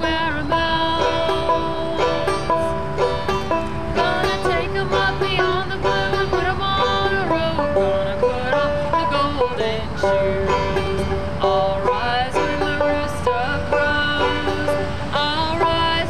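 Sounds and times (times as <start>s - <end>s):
banjo picking: 0.0s - 16.0s
sliding sustained melody: 0.0s - 16.0s.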